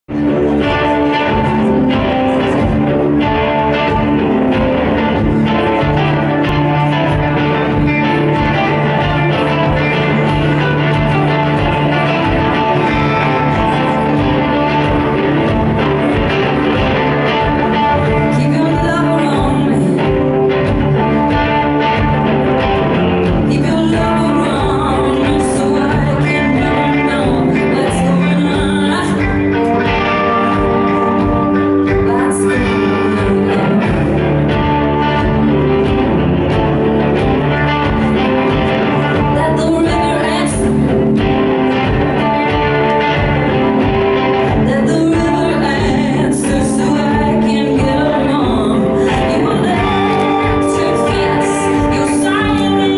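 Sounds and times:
electric guitar playing: 0.0 - 52.9
woman singing: 5.8 - 22.0, 23.3 - 35.3, 39.1 - 41.0, 44.5 - 52.9.

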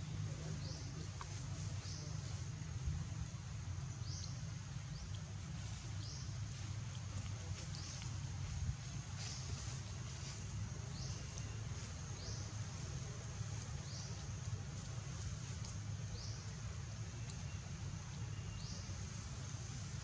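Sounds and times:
low steady rumble: 0.0 - 20.0.

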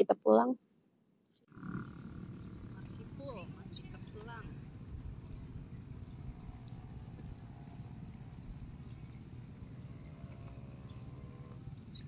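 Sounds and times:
insects shrilling: 1.5 - 12.0
wind on microphone: 2.4 - 10.4.

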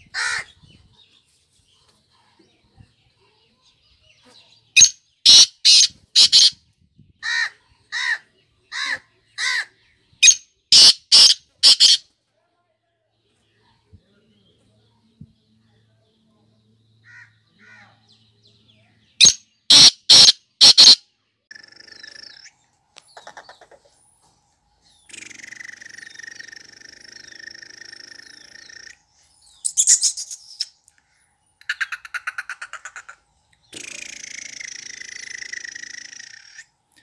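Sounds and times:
bird calling harsh notes: 4.8 - 6.6, 7.2 - 12.0, 19.2 - 22.5.

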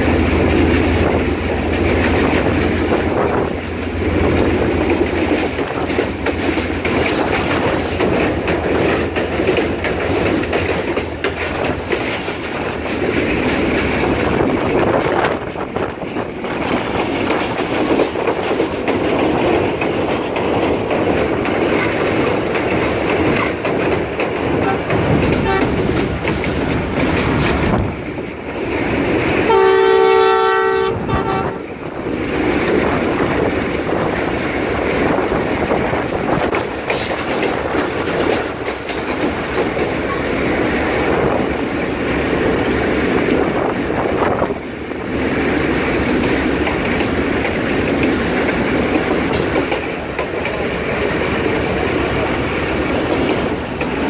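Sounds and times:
wind and rail noise: 0.0 - 54.0
locomotive horn blast: 24.6 - 25.8, 29.4 - 31.6.

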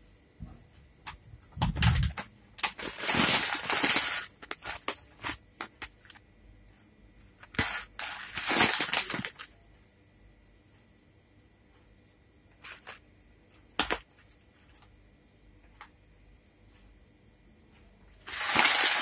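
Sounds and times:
plastic packet crinkling: 1.8 - 5.4, 7.6 - 9.5, 18.3 - 19.0.

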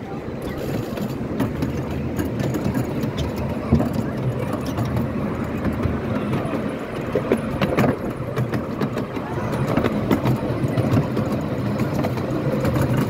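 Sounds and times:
miniature train running: 0.0 - 13.0
wheels clicking over rails: 0.0 - 13.0.

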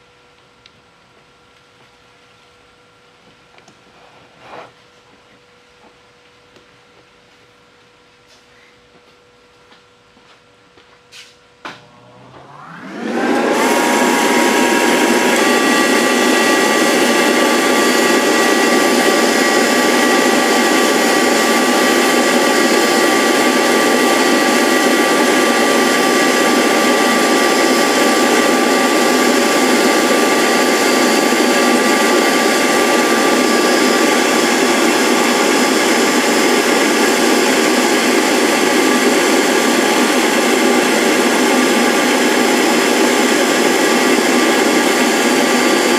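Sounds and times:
high-pitched cutter motor: 12.2 - 45.9.

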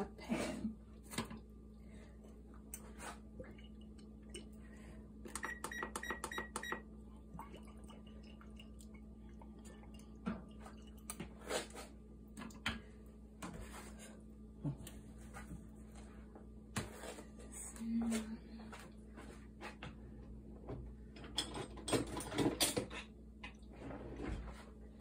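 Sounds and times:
low steady hum: 0.0 - 25.0.

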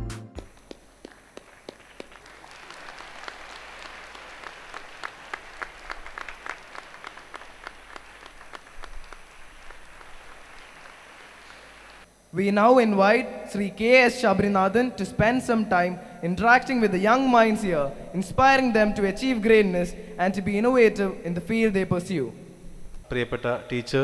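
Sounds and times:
audience applauding: 0.5 - 12.0.

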